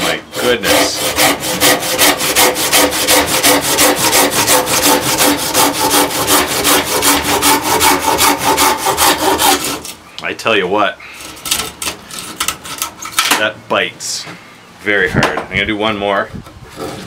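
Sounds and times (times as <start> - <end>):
pull saw sawing through log: 0.0 - 10.0.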